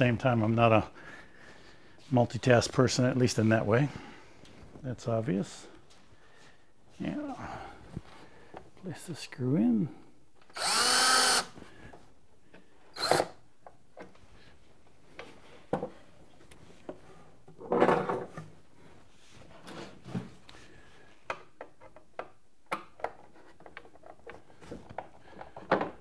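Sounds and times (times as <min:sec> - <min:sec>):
cordless drill driving screw: 0:10.5 - 0:11.6, 0:13.0 - 0:13.4
clicks and knocks of tools and wood: 0:21.2 - 0:26.0.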